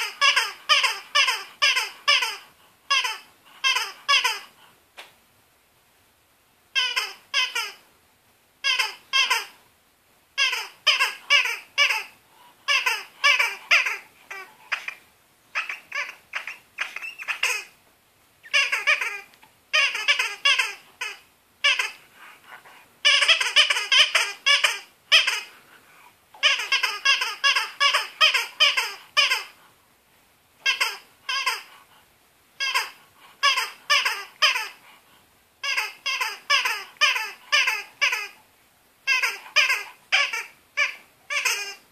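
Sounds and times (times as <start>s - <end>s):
rubber dog toy squeaking: 0.0s - 4.6s, 6.7s - 7.8s, 8.6s - 9.6s, 10.4s - 17.8s, 18.4s - 22.0s, 23.0s - 25.5s, 26.4s - 29.6s, 30.6s - 31.7s, 32.6s - 34.8s, 35.6s - 38.4s, 39.0s - 41.9s.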